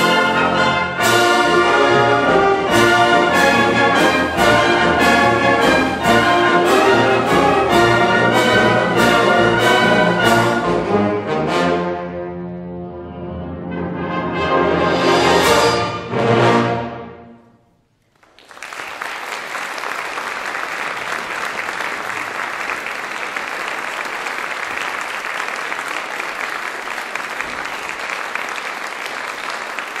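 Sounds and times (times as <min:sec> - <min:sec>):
audience applauding: 0:18.0 - 0:30.0.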